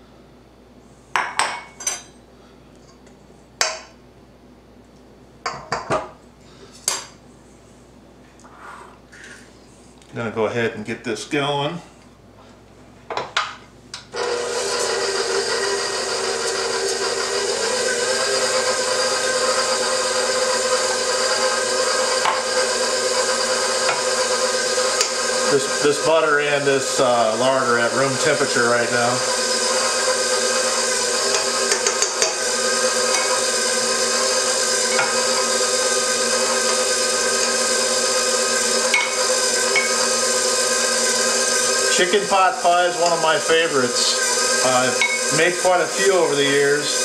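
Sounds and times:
stand mixer running: 14.1s - 47.0s.

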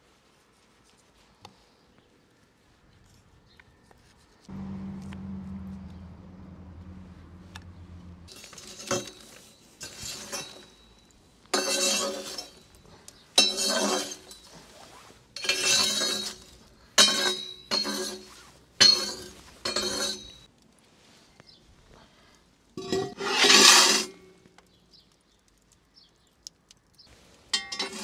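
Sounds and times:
clinks and scrapes on dish: 8.3s - 10.9s, 11.6s - 12.8s, 13.4s - 14.7s, 15.4s - 20.5s, 22.8s - 24.3s, 27.6s - 28.0s.

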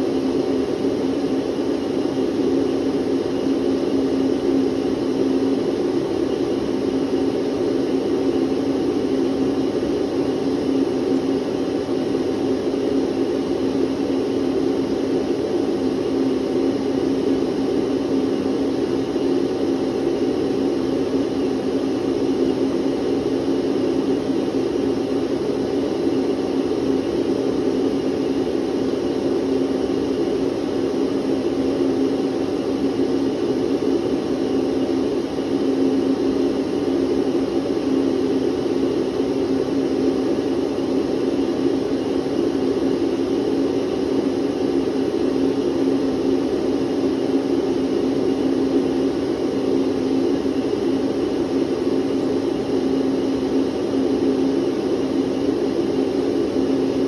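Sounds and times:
vacuum cleaner running: 0.0s - 1.1s.

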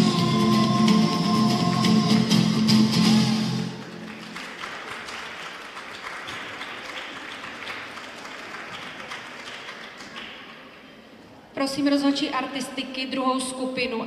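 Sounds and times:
music: 0.0s - 3.9s
audience applauding: 3.6s - 10.7s.

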